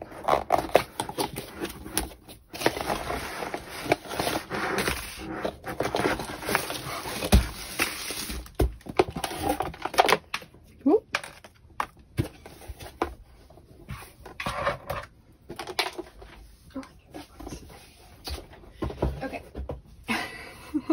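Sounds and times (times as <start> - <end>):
cardboard box rustling and scraping: 0.0 - 10.0.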